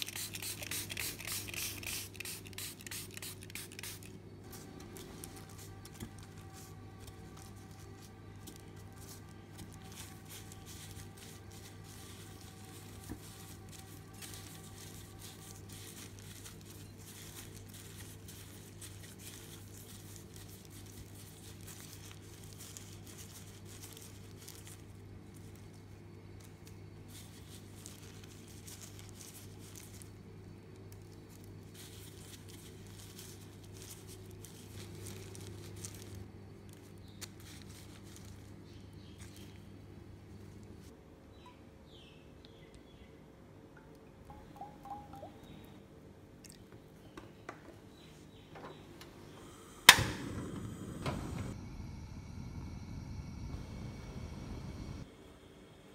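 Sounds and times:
steady low hum: 0.0s - 20.7s, 47.9s - 55.9s
plastic glove crinkling: 0.0s - 41.0s
sesame seeds rustling: 0.0s - 41.0s.

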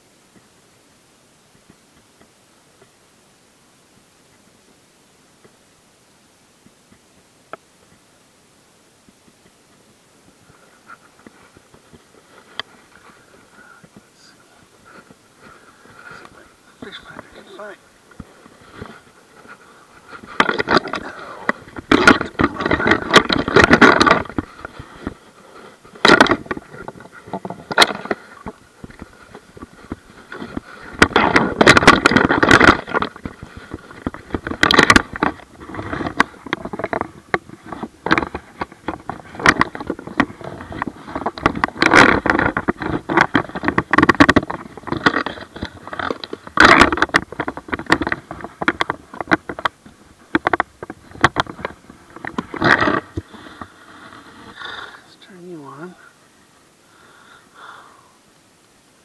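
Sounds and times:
gear scraping and rustling: 9.2s - 56.1s.

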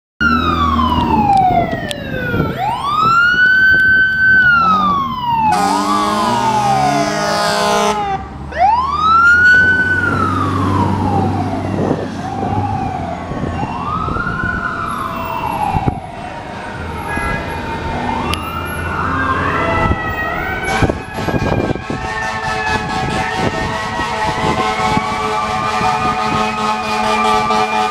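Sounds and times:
electronic siren sweeping: 0.2s - 27.9s
mechanical siren wailing: 0.2s - 27.9s
air horn blasting: 5.5s - 8.2s, 20.6s - 27.9s.

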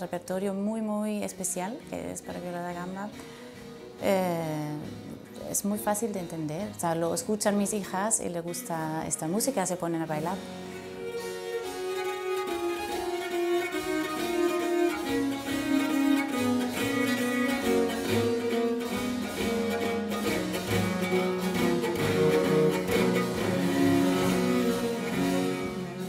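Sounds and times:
viola da gamba bowing melody: 10.8s - 26.0s.

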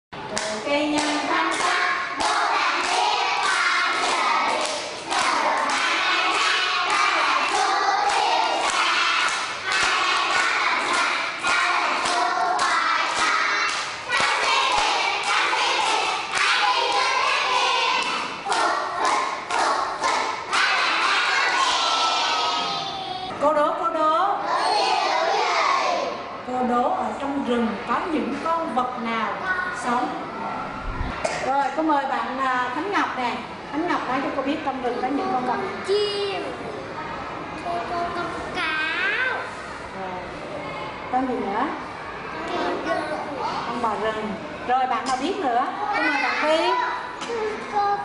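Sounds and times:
children singing: 1.5s - 23.3s, 24.5s - 26.1s.

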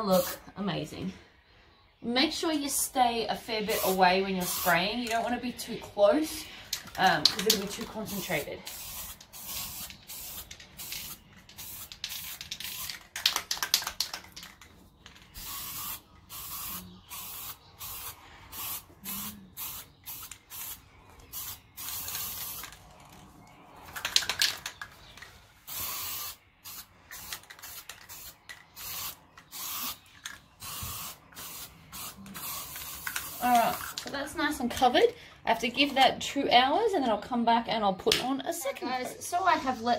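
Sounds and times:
aerosol can spraying: 3.6s - 5.2s, 7.2s - 14.2s, 15.4s - 22.8s, 25.7s - 30.0s, 30.6s - 34.1s.

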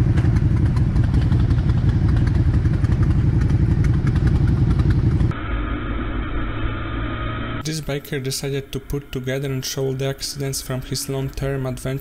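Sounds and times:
motorcycle engines idling: 0.0s - 5.3s.

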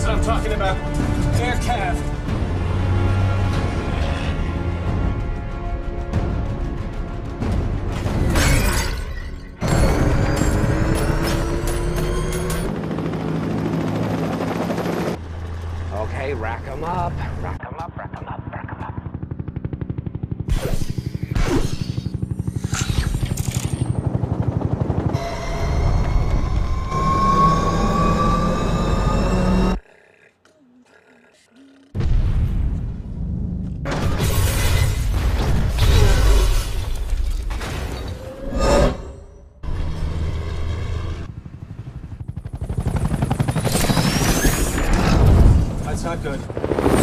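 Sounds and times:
helicopter rotor chopping: 9.9s - 29.8s, 39.7s - 47.0s.

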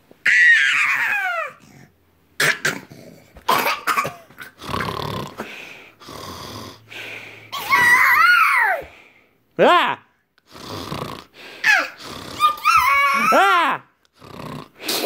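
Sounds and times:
toddler squealing: 0.2s - 1.6s, 7.6s - 8.9s, 11.7s - 13.6s
man pretend snoring: 4.5s - 6.9s, 10.4s - 12.7s, 14.2s - 15.0s.

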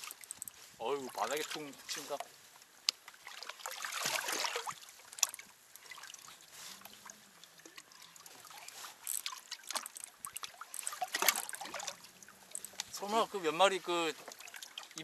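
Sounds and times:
water trickling and lapping: 0.0s - 15.0s
light ticks: 2.2s - 3.2s.

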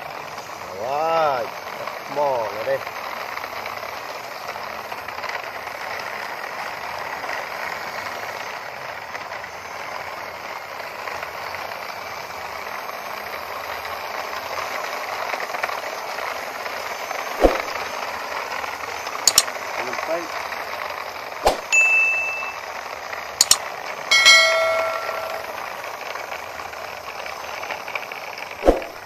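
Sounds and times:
toy truck wheels rolling on concrete: 0.0s - 29.0s
sharp click: 17.4s - 17.8s, 19.3s - 19.5s, 21.4s - 21.7s, 23.4s - 25.6s, 28.6s - 29.0s.

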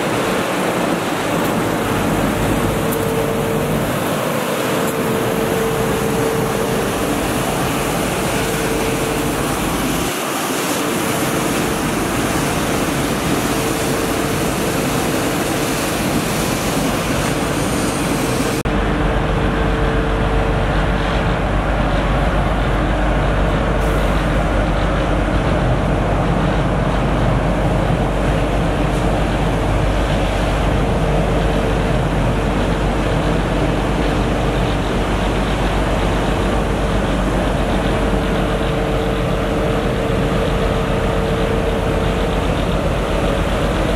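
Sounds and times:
street sweeper whine: 0.0s - 43.9s
deep rumble: 18.6s - 43.9s.

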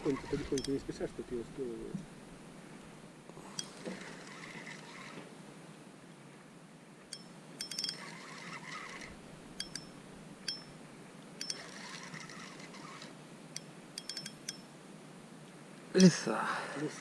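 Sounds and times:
fishing reel gears whirring: 0.0s - 0.8s, 3.4s - 5.2s, 7.1s - 10.8s, 11.4s - 14.6s
sharp metallic clicks: 0.4s - 0.8s, 7.1s - 10.8s, 11.4s - 14.7s.

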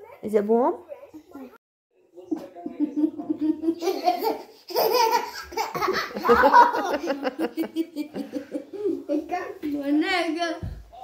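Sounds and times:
children laughing: 2.6s - 9.1s.

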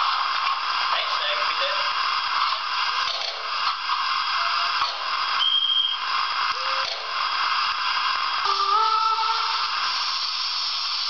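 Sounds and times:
hiss and light rattling: 0.0s - 11.0s
short high whistle: 4.4s - 7.0s.

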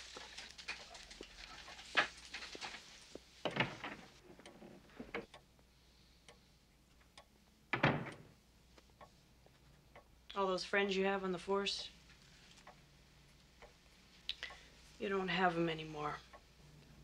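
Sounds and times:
short rustling: 0.0s - 4.8s.

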